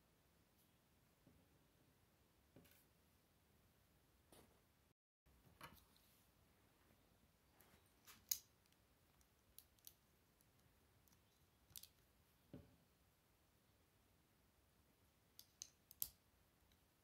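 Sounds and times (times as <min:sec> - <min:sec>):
plastic bricks clicking together: 0:09.6 - 0:10.0.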